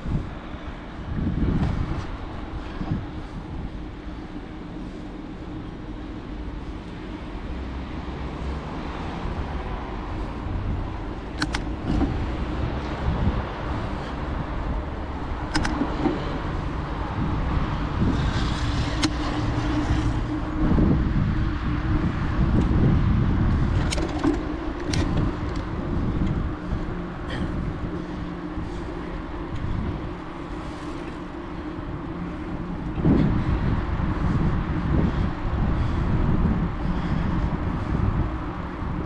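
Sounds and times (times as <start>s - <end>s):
motor traffic: 0.0s - 39.0s
road rumble: 0.0s - 39.0s
wind: 0.0s - 39.0s
sharp clicks: 11.3s - 12.0s, 15.5s - 15.9s.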